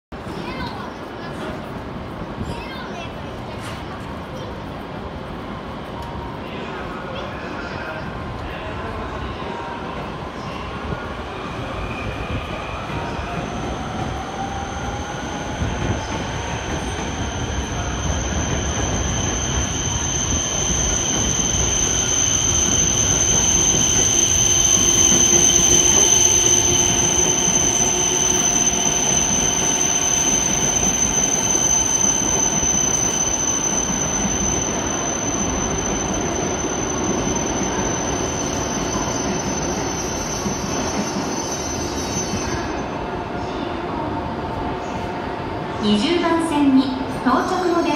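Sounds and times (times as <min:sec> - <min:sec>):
high-pitched train squeal: 0:08.6 - 0:44.0.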